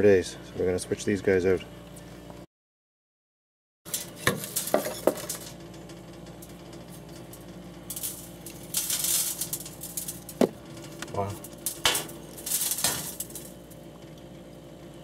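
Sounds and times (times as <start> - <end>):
crackly metal scraping: 3.9 - 14.4.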